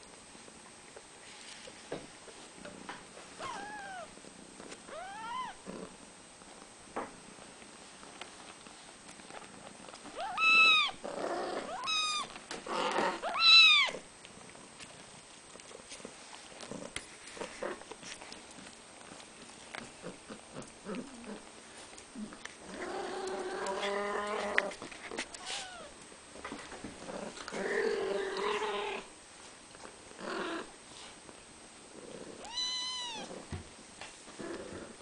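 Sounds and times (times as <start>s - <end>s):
cat meowing: 3.4s - 4.1s, 4.9s - 5.6s, 10.2s - 11.0s, 11.6s - 12.3s, 13.2s - 14.0s, 32.4s - 33.4s.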